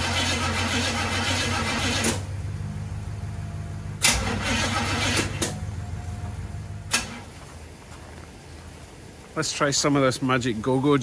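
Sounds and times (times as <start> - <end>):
engine cranking on starter: 0.0 - 2.4, 4.0 - 5.7, 6.8 - 7.3.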